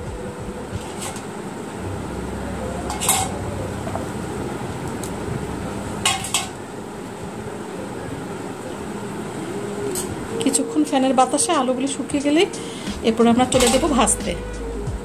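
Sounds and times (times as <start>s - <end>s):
metal strainer clinking on metal plate: 13.6s - 14.0s.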